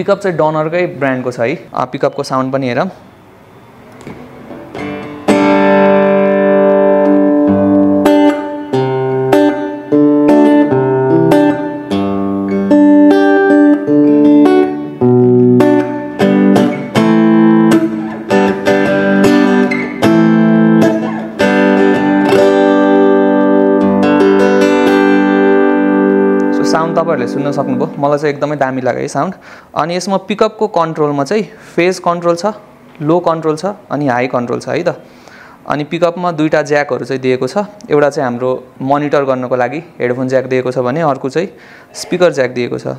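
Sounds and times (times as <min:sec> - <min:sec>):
acoustic guitar plucked chords: 0:04.0 - 0:28.6.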